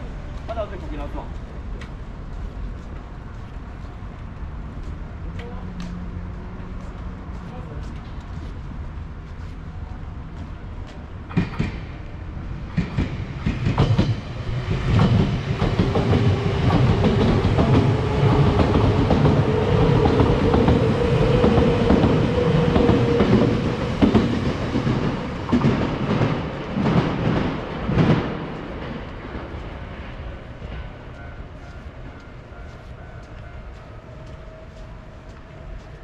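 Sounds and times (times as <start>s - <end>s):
steady train whine: 0.0s - 36.0s
train wheels clacking: 11.3s - 12.0s, 12.7s - 36.0s.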